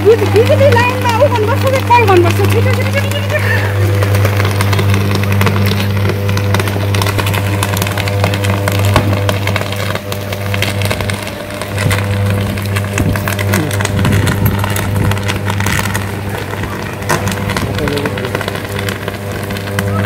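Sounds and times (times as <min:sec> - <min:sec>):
electrical arc crackling: 0:00.0 - 0:20.0
heavy rain: 0:00.0 - 0:20.0
loud mains buzz: 0:00.0 - 0:20.0.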